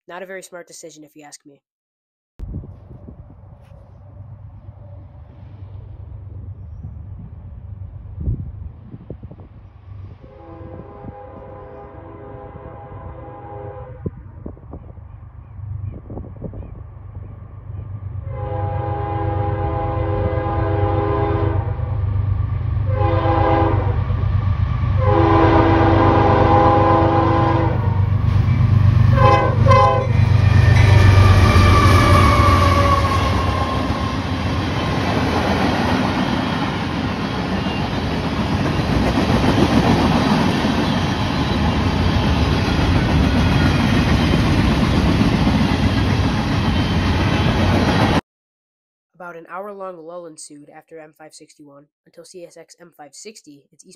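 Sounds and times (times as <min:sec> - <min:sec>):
locomotive air horn blasts: 0:10.2 - 0:14.1, 0:18.3 - 0:21.8, 0:22.9 - 0:24.0, 0:25.0 - 0:28.0, 0:29.1 - 0:30.2, 0:31.1 - 0:34.2
train wheels rumbling on rail: 0:14.0 - 0:48.2.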